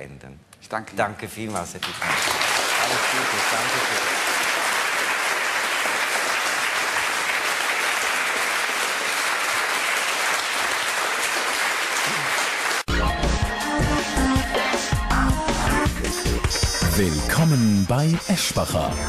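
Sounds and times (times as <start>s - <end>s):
audience applauding: 1.8s - 12.9s
theme music with heavy bass beat: 12.9s - 19.0s.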